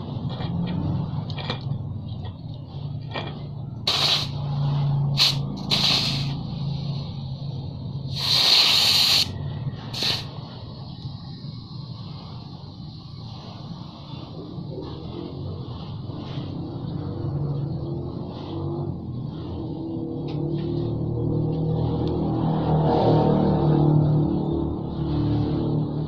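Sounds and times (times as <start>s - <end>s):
low steady hum: 0.0s - 8.4s
compressed air hissing: 3.9s - 4.4s, 5.2s - 7.0s, 8.1s - 10.3s.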